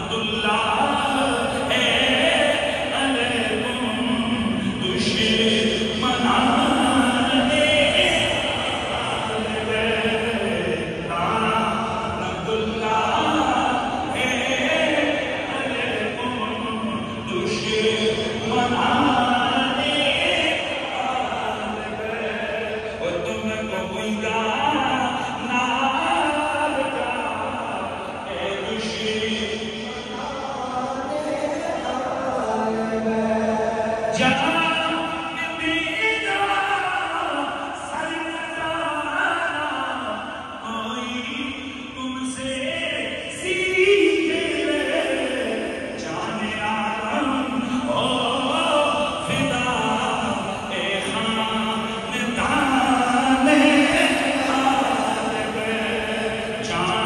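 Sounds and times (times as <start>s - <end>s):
congregation chanting in unison: 0.0s - 57.0s
voices chanting together: 26.0s - 37.8s, 42.8s - 57.0s.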